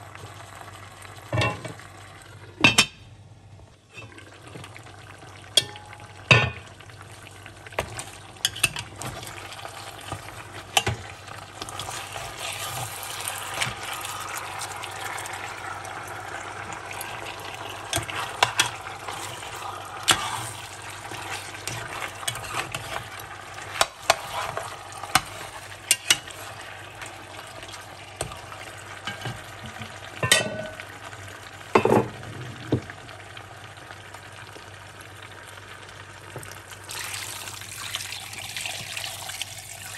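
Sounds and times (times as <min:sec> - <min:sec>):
meat sizzling in a pot: 0:00.0 - 0:02.6, 0:03.8 - 0:39.9
metal spoon scraping a pot: 0:17.7 - 0:23.1, 0:23.7 - 0:26.6.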